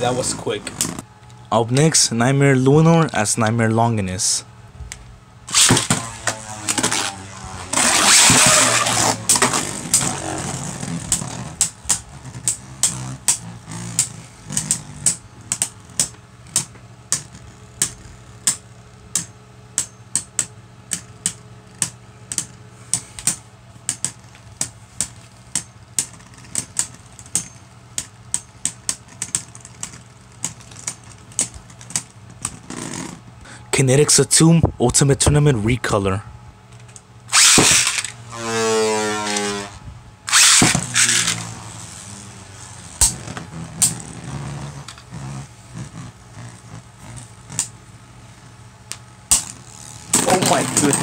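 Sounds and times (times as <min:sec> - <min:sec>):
spinning top launch rush: 0:05.5 - 0:10.1, 0:37.3 - 0:39.7, 0:40.3 - 0:42.2
spinning tops clicking together: 0:40.3 - 0:41.5.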